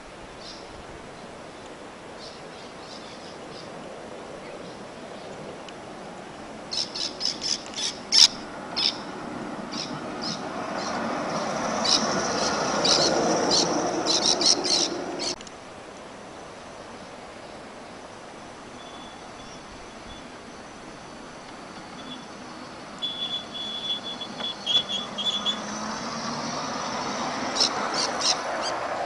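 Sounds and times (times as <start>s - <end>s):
model tram wheels and motor rumbling: 8.5s - 15.4s, 19.2s - 28.0s
short high squeaks: 18.9s - 25.8s.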